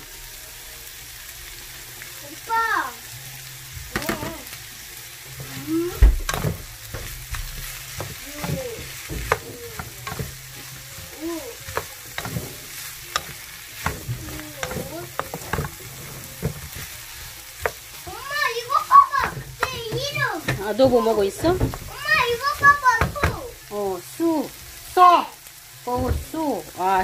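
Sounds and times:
vegetables and meat sizzling in pan: 0.0s - 27.0s
spatula scraping and tapping pan: 5.4s - 23.5s
loud knock on pan: 6.0s - 10.4s.

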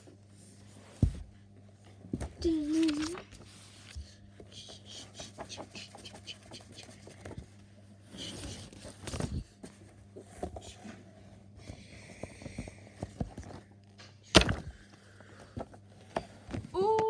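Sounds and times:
books knocking on carpet: 0.9s - 1.3s
paper rustling: 2.5s - 4.0s.

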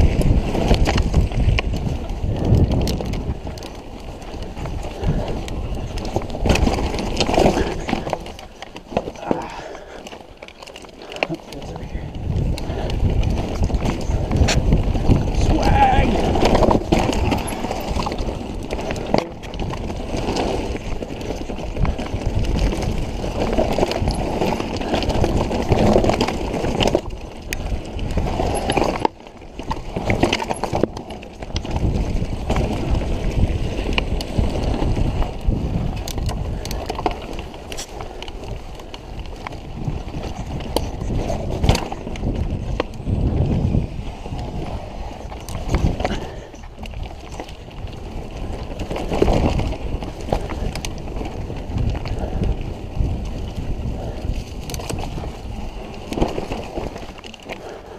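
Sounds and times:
bike knocking on rocks: 0.0s - 44.7s, 45.3s - 57.7s
bike rattling: 0.0s - 57.9s
tyres crunching on loose stones: 0.0s - 57.9s.

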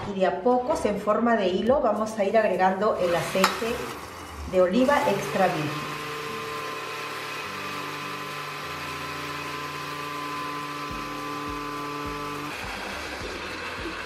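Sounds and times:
blender motor running: 3.0s - 14.0s.

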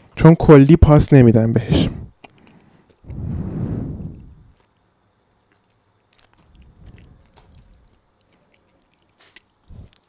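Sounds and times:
breathy rush of noise: 1.7s - 4.6s.

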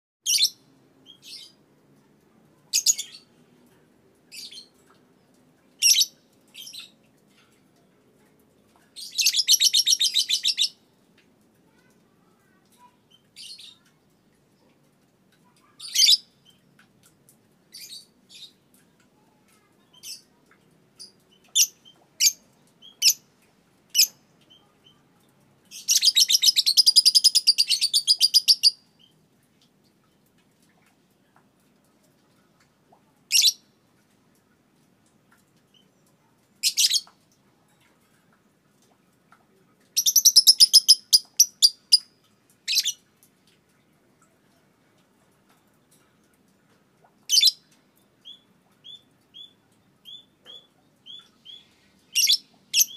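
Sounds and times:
bird chirping: 40.0s - 42.1s, 48.2s - 52.9s.

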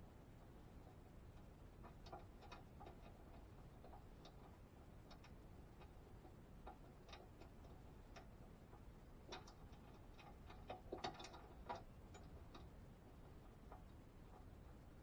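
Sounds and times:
faint small clicks and taps: 0.3s - 15.0s.

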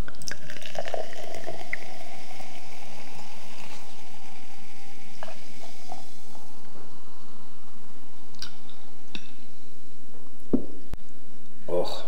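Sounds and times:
lemonade pouring with fizzing hiss: 0.0s - 7.0s.

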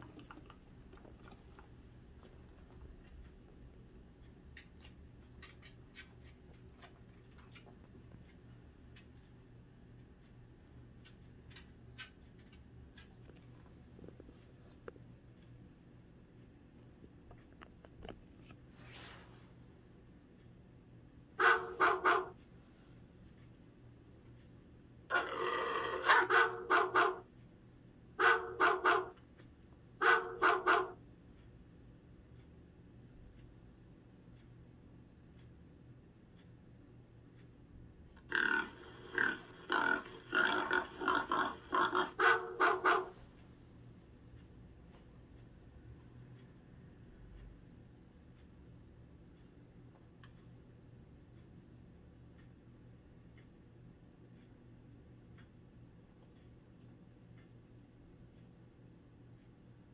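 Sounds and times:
soft rustle: 18.3s - 19.7s
dog barking: 21.4s - 22.3s, 26.0s - 27.2s, 28.2s - 29.2s, 30.0s - 31.0s, 42.0s - 43.2s.

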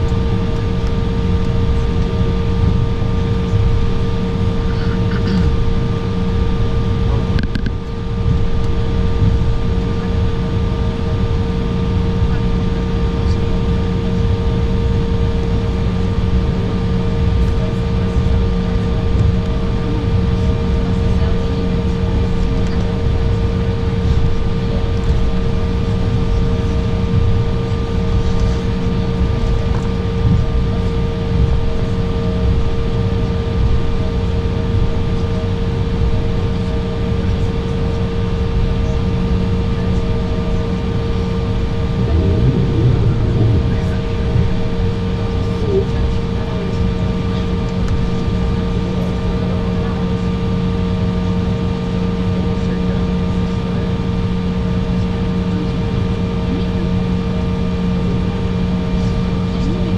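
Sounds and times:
low rumble: 0.0s - 12.3s, 41.1s - 47.3s
aircraft cabin drone: 0.0s - 59.9s
humming tones: 40.7s - 48.4s.

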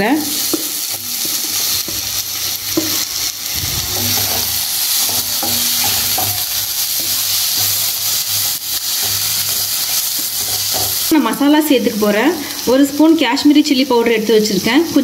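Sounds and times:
vegetables sizzling in hot oil: 0.0s - 15.0s
wooden spatula scraping pan: 2.8s - 7.9s.

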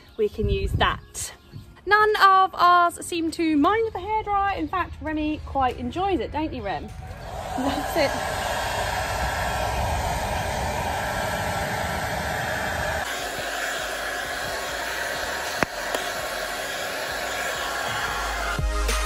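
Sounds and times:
hair dryer blowing: 7.1s - 19.0s.

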